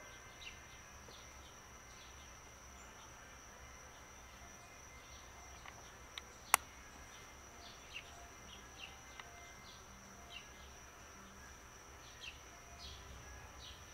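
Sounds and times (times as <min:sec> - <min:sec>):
small birds chirping: 0:00.0 - 0:13.9
sharp click: 0:05.6 - 0:06.7.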